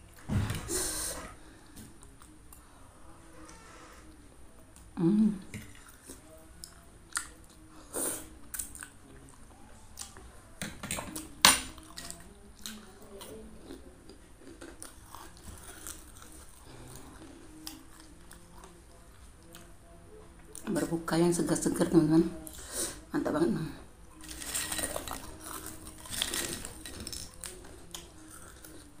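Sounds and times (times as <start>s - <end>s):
person chewing noodles: 11.8s - 19.7s, 24.2s - 28.9s.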